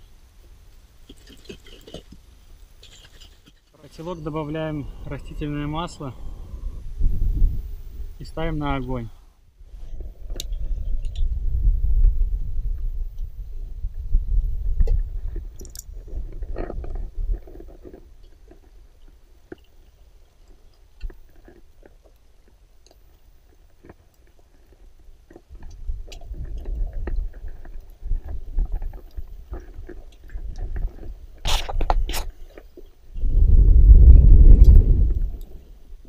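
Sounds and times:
crunchy handling noises: 0.7 - 6.1, 14.8 - 33.1
wind rumble on microphone: 4.1 - 18.8, 25.5 - 32.3, 33.1 - 36.0.

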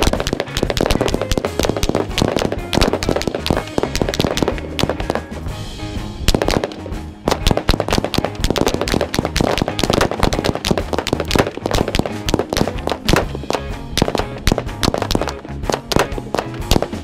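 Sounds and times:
guns firing rapidly: 0.0 - 5.5, 6.3 - 17.0
background music: 0.0 - 17.0.

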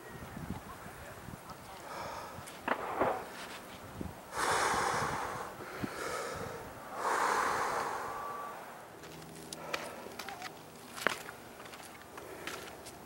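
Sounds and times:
person breathing out heavily: 1.8 - 2.4, 4.3 - 8.7.

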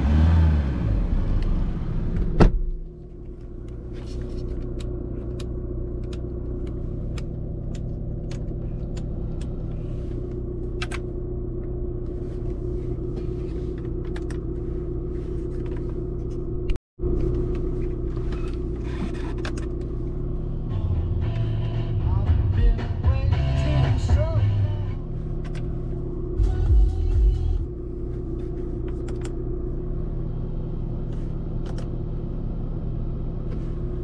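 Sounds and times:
diesel engine idling: 19.7 - 34.0.

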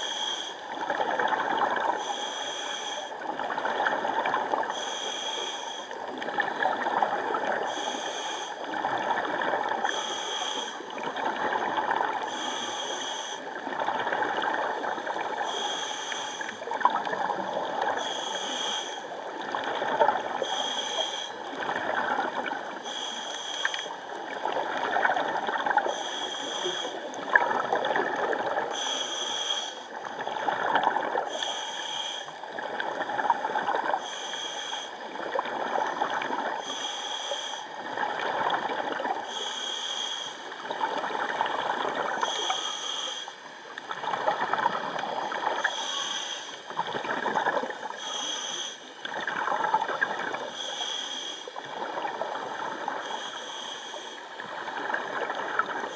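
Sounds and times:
regulator inhale hiss: 0.0 - 0.7, 1.8 - 3.2, 4.6 - 6.8, 7.5 - 8.8, 9.8 - 11.0, 12.2 - 13.7, 14.9 - 16.8, 17.4 - 19.2, 20.4 - 21.6, 22.3 - 24.3, 25.8 - 27.2, 28.6 - 32.8, 33.9 - 35.4, 36.2 - 37.9, 39.0 - 41.2, 42.2 - 49.2, 50.4 - 51.6, 52.7 - 54.9
gurgling exhaled bubbles: 0.7 - 2.0, 6.0 - 7.8, 10.8 - 12.3, 16.6 - 18.0, 21.5 - 22.8, 24.1 - 28.8, 29.9 - 31.3, 40.6 - 42.7, 43.8 - 45.9, 46.6 - 48.1, 49.0 - 50.5.

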